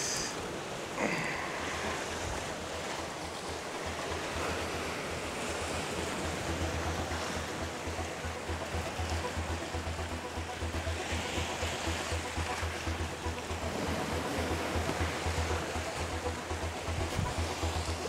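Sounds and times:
surf washing against rocks: 0.0s - 18.0s.

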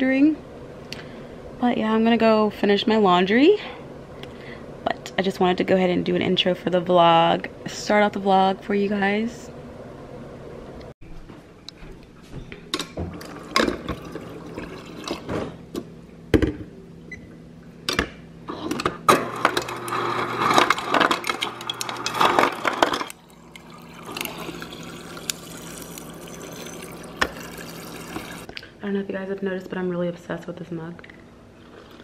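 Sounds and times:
water running into mug: 13.1s - 15.3s, 21.6s - 28.5s
ice cubes clattering into mug: 20.4s - 28.5s.

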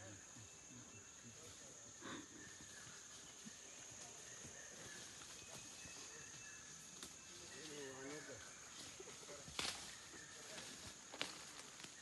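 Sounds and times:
soft ticks and rustles: 8.7s - 12.0s.

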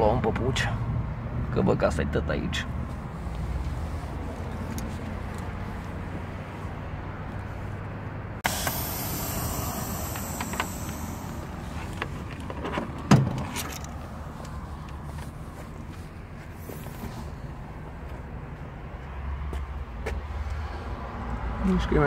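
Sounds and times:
hiss: 8.4s - 11.9s
truck engine idling: 8.4s - 12.5s.

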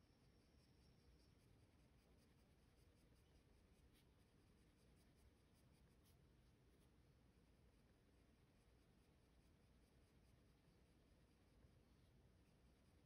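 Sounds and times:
colored pencil scratching on paper: 1.2s - 7.0s.

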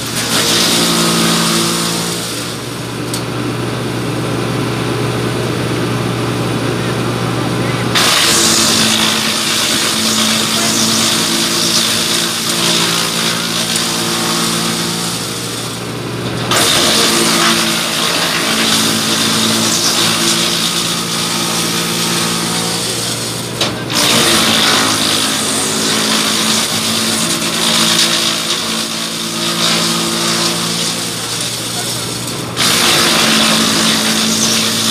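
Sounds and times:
wood chipper engine and rotor hum: 0.0s - 34.9s
wood being chipped: 8.0s - 15.3s, 16.4s - 34.9s.

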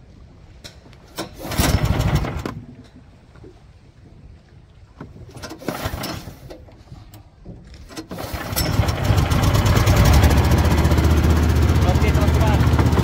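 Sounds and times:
boat engine starting and running: 1.1s - 3.2s, 5.2s - 13.0s.

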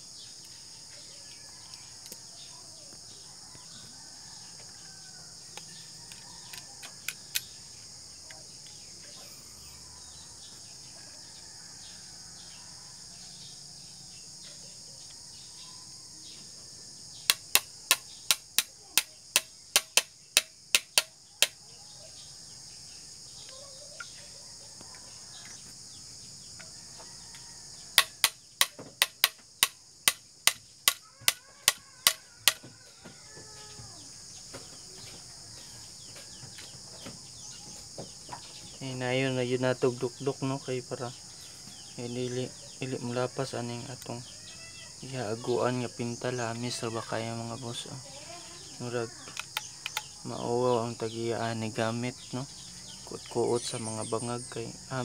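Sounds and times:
high insect buzz: 0.0s - 55.0s
screwdriver handle tapping metal: 28.0s - 29.3s.

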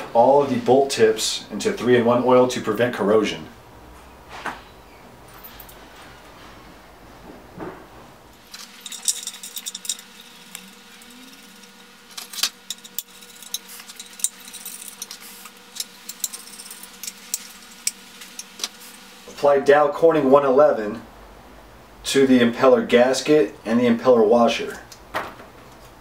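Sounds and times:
bolts and washers clinking: 8.4s - 10.6s, 12.1s - 18.8s.

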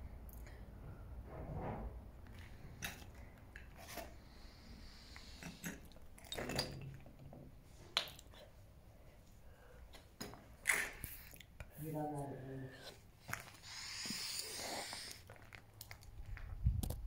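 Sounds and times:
footsteps crunching over rubble: 15.3s - 16.8s.

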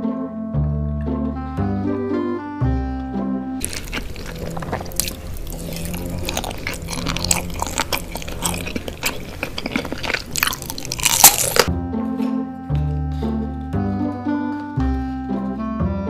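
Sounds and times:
noodle slurping: 3.6s - 11.7s
wet chewing and smacking: 3.6s - 11.7s.

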